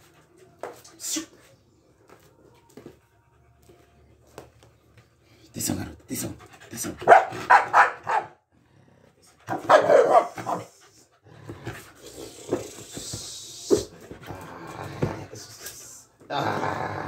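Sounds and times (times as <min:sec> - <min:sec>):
dog barking: 0:07.0 - 0:08.4, 0:09.5 - 0:10.7.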